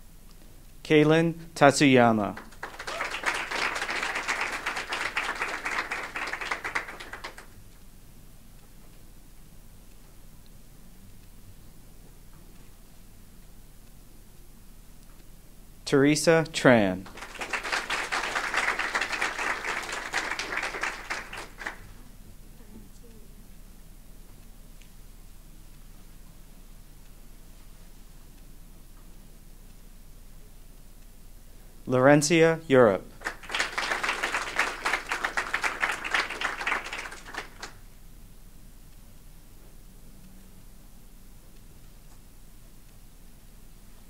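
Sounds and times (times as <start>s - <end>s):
audience applauding: 2.3s - 7.6s, 17.0s - 22.0s, 33.2s - 37.8s.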